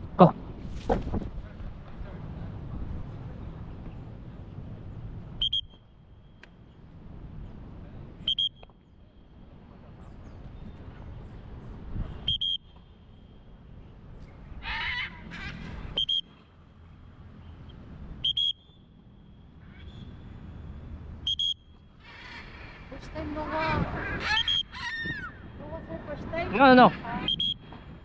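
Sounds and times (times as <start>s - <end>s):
parrot screeching: 14.6s - 15.7s, 23.6s - 25.4s.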